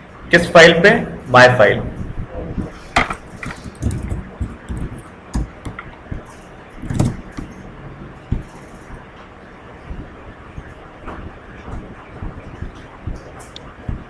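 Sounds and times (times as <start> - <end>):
faint background hum: 0.0 - 14.0
desk handling knocks: 3.0 - 5.9, 6.8 - 7.5.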